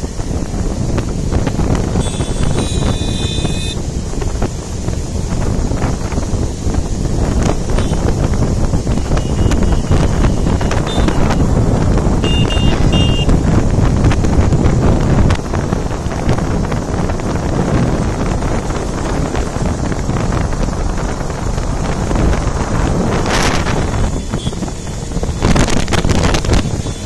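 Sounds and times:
motorcycle engine and road noise: 0.0s - 27.0s
wind buffeting microphone: 0.0s - 27.0s
short high beeps: 2.0s - 3.8s, 9.2s - 11.4s, 12.2s - 13.3s.

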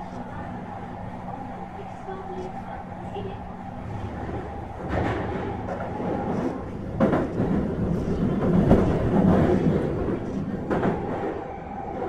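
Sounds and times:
train wheels and motors rumbling: 0.0s - 12.0s.

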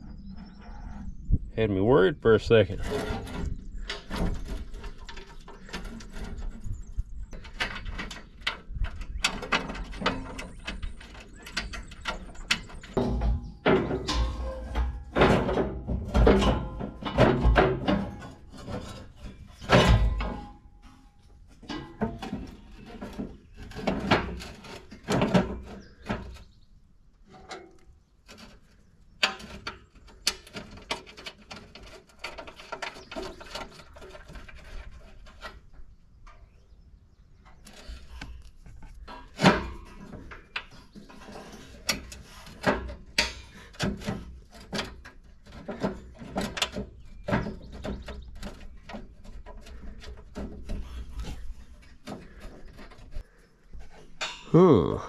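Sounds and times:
metal clinks and scrapes: 2.6s - 26.2s.

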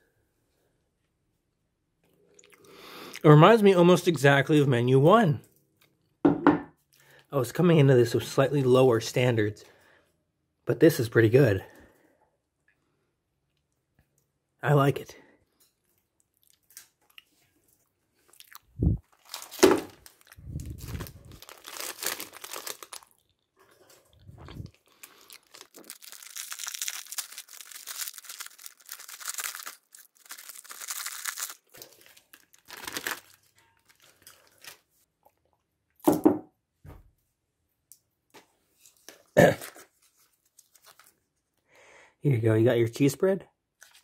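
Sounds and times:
plastic and foil pouches crinkling: 18.2s - 35.1s, 38.8s - 41.6s, 43.8s - 44.0s.

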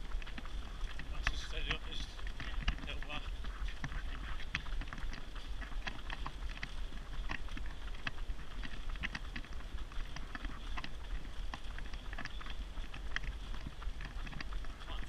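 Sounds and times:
buggy rolling on road: 0.0s - 15.0s
running footsteps on tarmac: 0.0s - 15.0s.

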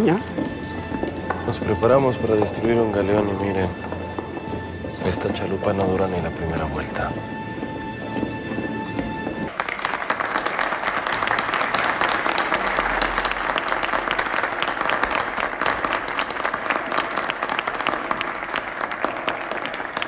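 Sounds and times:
people applauding: 9.5s - 20.0s.

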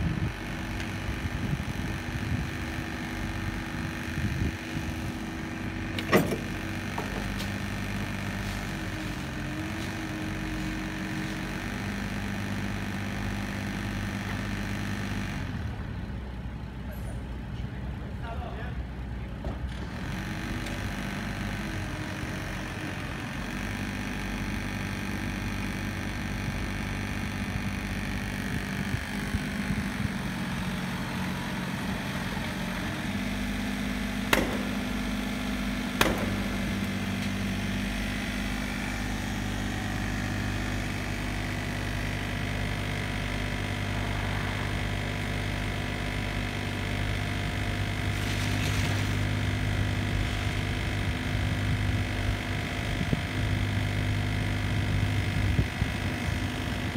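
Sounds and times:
mini excavator diesel engine running: 0.0s - 56.9s
sharp knocks: 34.3s - 34.8s, 36.0s - 36.5s.

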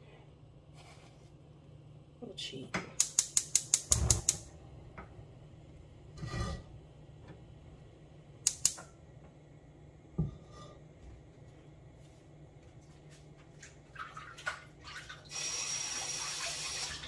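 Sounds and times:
frying pan scraping metal grate: 6.1s - 6.8s.

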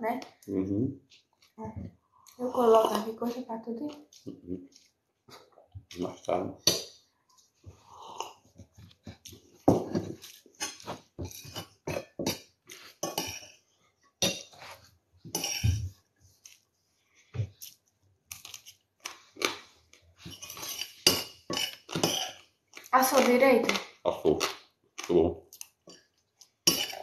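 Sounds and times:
metal spoon clinking in bowl: 26.7s - 27.0s.

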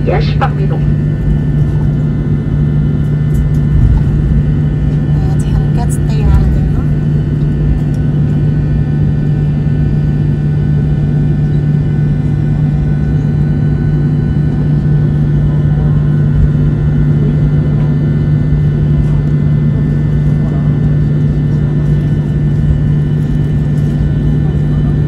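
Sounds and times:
jet engine drone in cabin: 0.0s - 25.0s.

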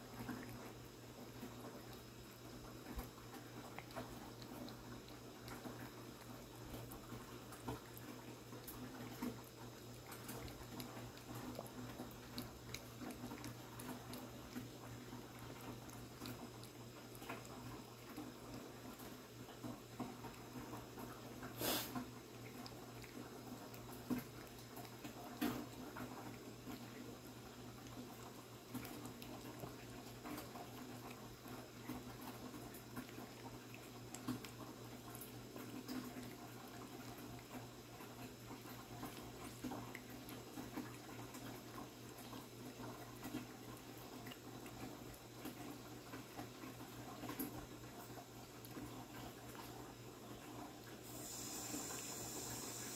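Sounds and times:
cat chewing and lapping food: 0.0s - 52.9s.

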